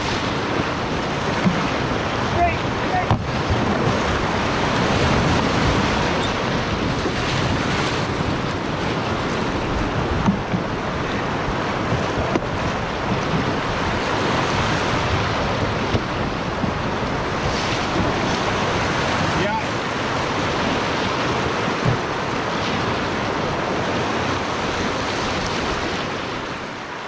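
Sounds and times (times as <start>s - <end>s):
wind buffeting microphone: 0.0s - 26.8s
whitewater rushing and splashing: 0.0s - 27.0s.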